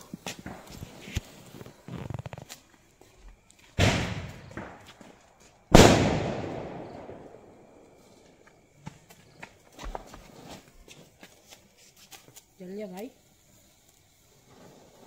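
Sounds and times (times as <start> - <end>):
firecracker bangs with echo: 3.8 - 4.9, 5.7 - 7.8.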